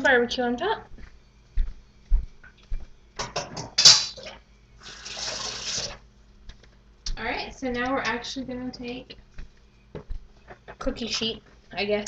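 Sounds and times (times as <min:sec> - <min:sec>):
kitchen tap running: 0:04.2 - 0:06.0.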